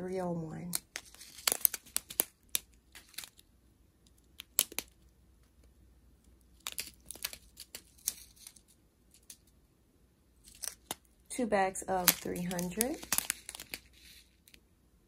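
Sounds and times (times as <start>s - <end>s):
plastic bags crinkling: 0.8s - 3.5s, 6.4s - 9.5s, 11.9s - 14.6s.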